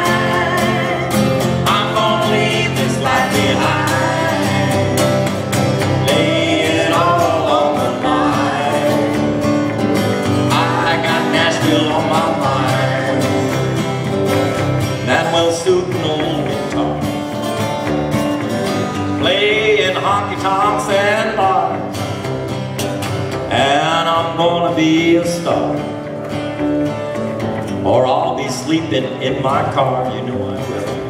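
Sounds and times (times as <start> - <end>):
person singing: 0.0 - 14.0, 15.0 - 17.2, 19.1 - 21.9
acoustic guitars strumming: 0.0 - 31.0
guitar melody line: 0.0 - 31.0.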